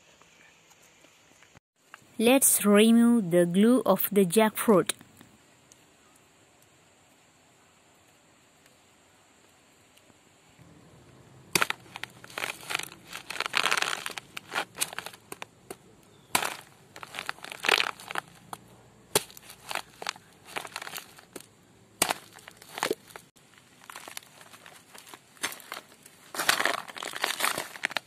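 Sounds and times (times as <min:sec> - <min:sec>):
knife crunching through fruit: 0:11.6 - 0:15.4, 0:16.1 - 0:18.5, 0:19.1 - 0:21.4.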